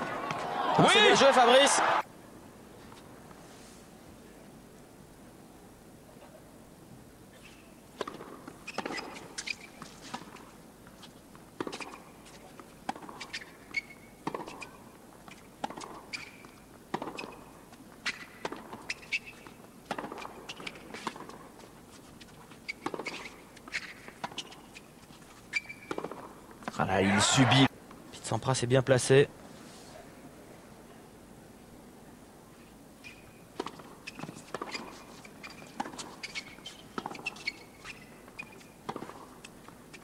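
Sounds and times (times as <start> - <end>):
shoes squeaking on court: 7.3 - 27.7, 33.0 - 40.0
tennis ball bouncing: 8.0 - 21.6, 22.2 - 24.8, 25.6 - 26.8, 33.6 - 40.0
tennis racket striking ball: 14.2 - 14.7, 36.9 - 39.2.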